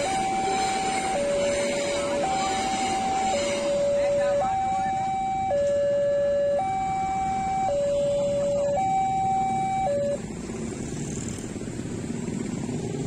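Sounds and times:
two-tone warning siren: 0.0 - 10.2.

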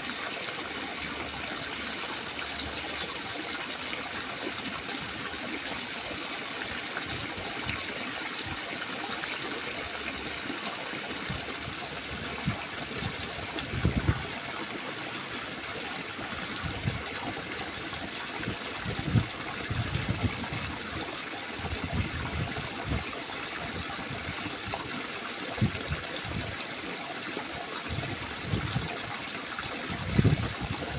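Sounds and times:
running water rushing: 0.0 - 30.9.

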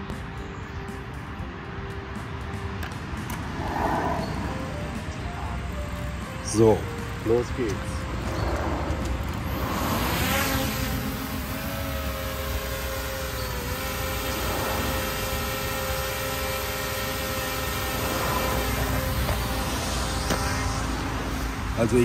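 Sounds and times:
drone propellers whining: 2.2 - 22.0.

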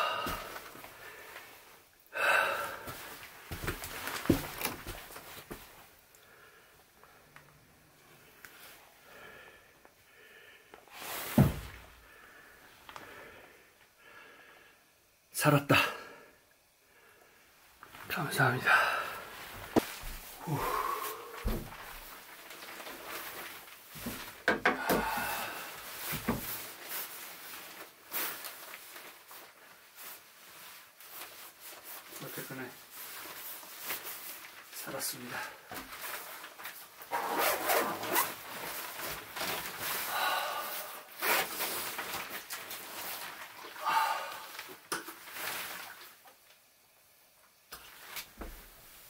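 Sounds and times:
man sighing loudly: 0.0 - 0.7, 20.4 - 21.7, 24.6 - 25.8, 43.8 - 44.6
rustling and handling noise: 0.0 - 2.0, 2.8 - 6.2, 10.8 - 13.0, 19.2 - 49.0
man breathing heavily: 0.0 - 3.6, 9.0 - 15.0, 18.6 - 22.0, 24.1 - 26.3, 39.6 - 41.2, 43.7 - 44.7.

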